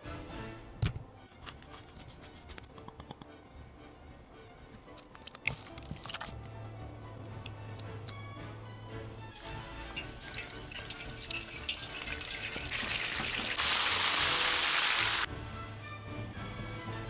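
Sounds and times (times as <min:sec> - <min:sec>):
background music: 0:00.0 - 0:17.0
food sizzling in hot oil: 0:09.4 - 0:15.3.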